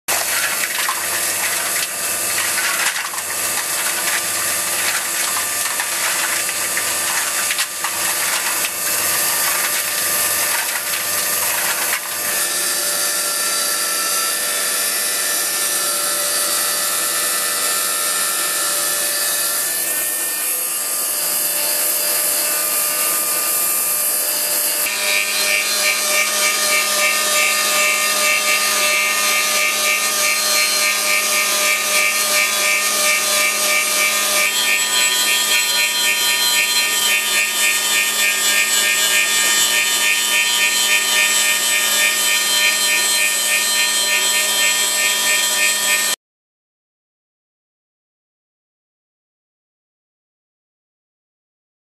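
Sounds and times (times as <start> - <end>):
angle grinder cutting: 0.1 - 46.2.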